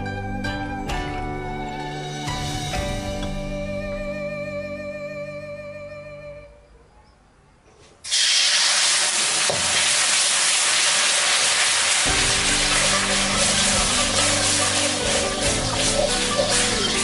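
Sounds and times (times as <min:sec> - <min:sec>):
caramel sizzling in wok: 0:08.1 - 0:17.0
steam hissing: 0:08.1 - 0:17.0.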